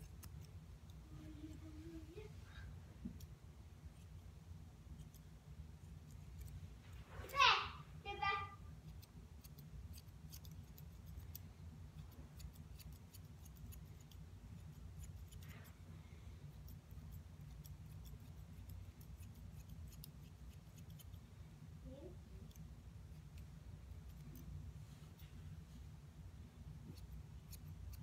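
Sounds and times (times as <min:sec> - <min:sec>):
grooming shears snipping: 0:00.0 - 0:01.0, 0:08.9 - 0:15.8
low steady hum: 0:00.0 - 0:28.0.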